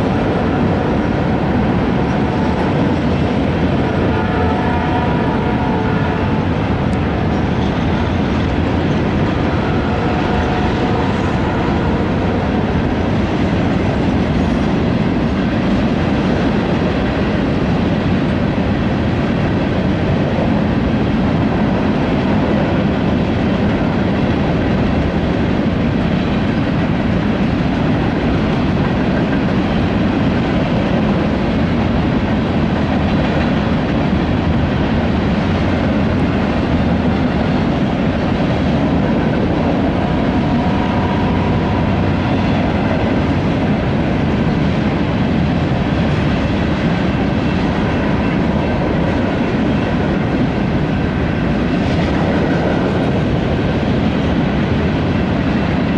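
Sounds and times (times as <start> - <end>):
clickety-clack over rail joints: 0.0 - 55.9
freight train wheels rumbling: 0.0 - 55.9.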